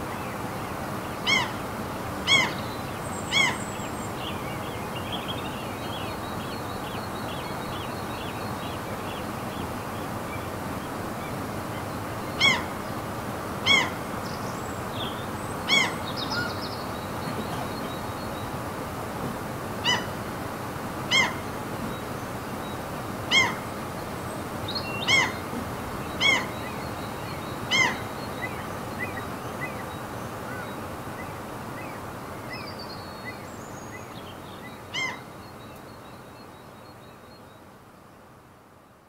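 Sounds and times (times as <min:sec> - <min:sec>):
seagulls calling: 0:01.2 - 0:01.6, 0:02.3 - 0:02.6, 0:03.3 - 0:03.6, 0:11.8 - 0:12.8, 0:13.6 - 0:14.0, 0:15.6 - 0:18.1, 0:19.8 - 0:20.2, 0:21.1 - 0:21.5, 0:23.3 - 0:23.7, 0:25.0 - 0:26.9, 0:27.6 - 0:29.2, 0:34.9 - 0:35.2.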